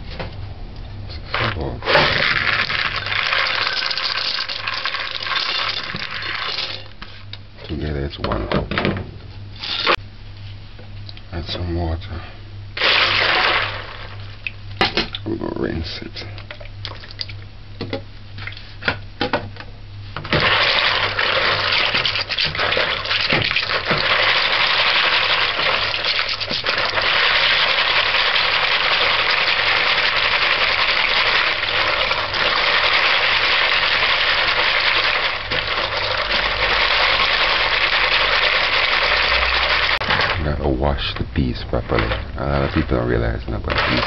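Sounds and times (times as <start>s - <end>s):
splashing and rattling beans: 1.3s - 7.2s, 9.6s - 10.0s, 12.8s - 15.2s, 20.3s - 40.6s, 41.7s - 44.0s
hands rubbing beans in water: 20.4s - 40.5s.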